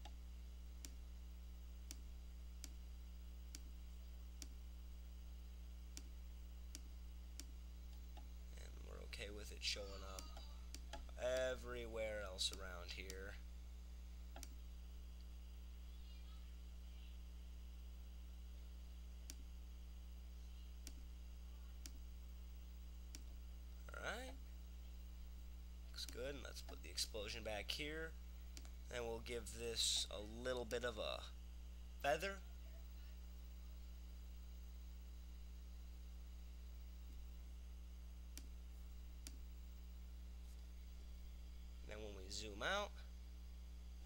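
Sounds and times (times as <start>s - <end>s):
low electrical hum: 0.0s - 44.0s
computer mouse clicks: 14.3s - 14.6s.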